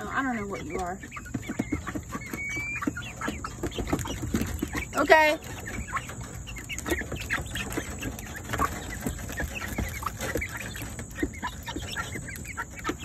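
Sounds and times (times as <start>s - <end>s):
chickens clucking: 0.0s - 13.0s
chickens pecking grain: 0.0s - 13.0s.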